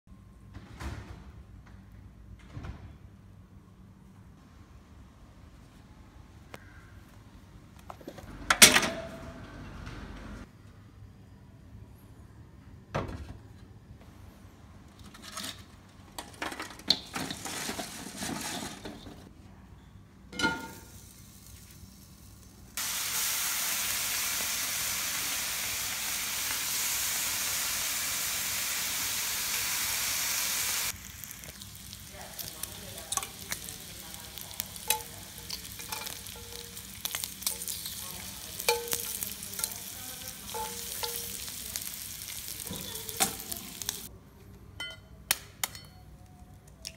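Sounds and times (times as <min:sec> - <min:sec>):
bacon sizzling in a pan: 0:20.9 - 0:44.1
metal tongs tapping a pan: 0:32.4 - 0:42.0, 0:42.6 - 0:44.1, 0:44.8 - 0:46.0.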